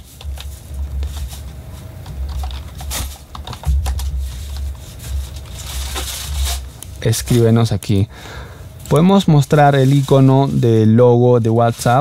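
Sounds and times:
keyboard typing: 0:02.0 - 0:04.6
low rumble: 0:03.6 - 0:07.4.

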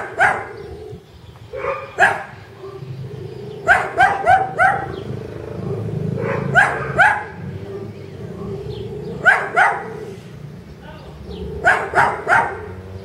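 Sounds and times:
dog barking: 0:00.0 - 0:00.7, 0:01.5 - 0:03.0, 0:03.6 - 0:10.2, 0:11.4 - 0:12.9.

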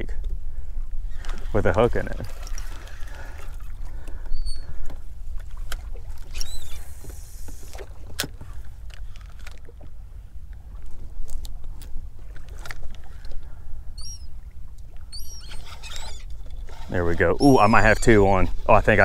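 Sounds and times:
seabird calls: 0:01.0 - 0:08.6, 0:12.2 - 0:19.0
waves lapping at boat hull: 0:01.1 - 0:19.0.

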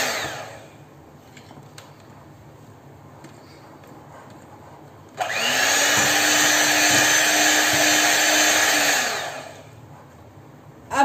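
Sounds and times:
electric hand mixer whine: 0:00.0 - 0:00.7, 0:05.2 - 0:09.8
beaters churning batter: 0:05.2 - 0:09.7.

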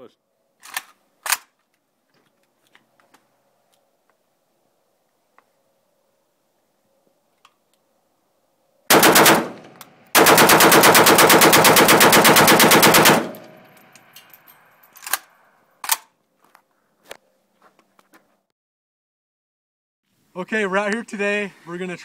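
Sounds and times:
rifle handling clicks: 0:00.6 - 0:01.8, 0:13.3 - 0:16.1
rifle gunshots: 0:08.9 - 0:13.7.

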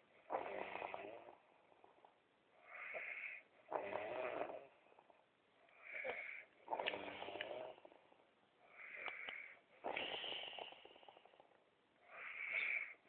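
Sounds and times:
man snoring: 0:00.3 - 0:01.4, 0:02.7 - 0:04.8, 0:05.8 - 0:07.9, 0:08.8 - 0:11.5.

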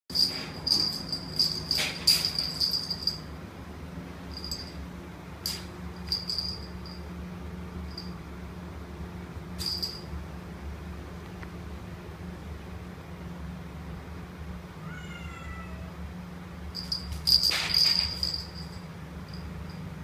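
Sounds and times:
small bell jingling: 0:00.1 - 0:03.4, 0:04.2 - 0:04.8, 0:05.4 - 0:07.1, 0:07.8 - 0:08.2, 0:09.6 - 0:10.2, 0:16.7 - 0:20.0
low steady hum: 0:00.1 - 0:20.0.

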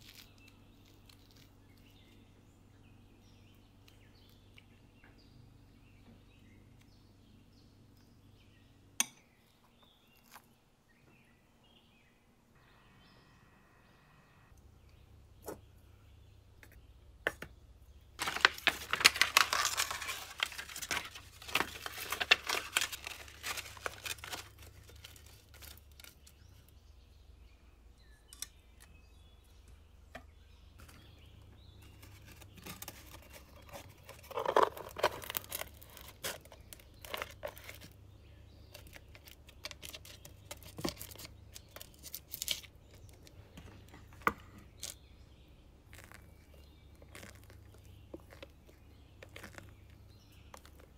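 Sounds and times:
paper crinkling: 0:18.2 - 0:26.7, 0:31.8 - 0:38.0, 0:38.7 - 0:45.0, 0:45.9 - 0:50.9.

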